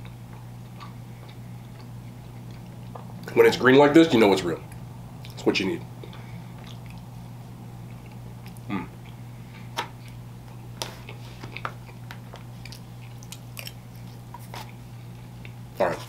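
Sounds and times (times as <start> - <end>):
close chewing: 0.0 - 3.3, 11.0 - 14.8
steady low hum: 0.0 - 16.0.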